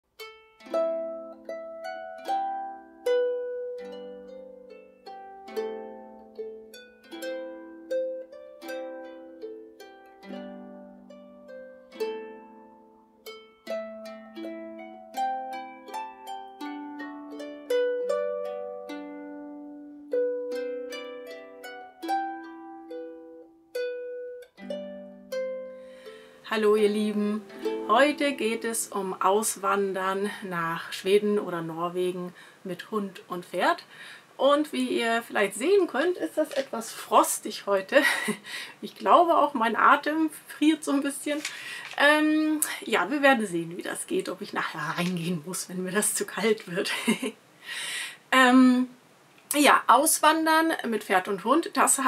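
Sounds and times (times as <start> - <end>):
harp playing slow piece: 0.2 - 29.2.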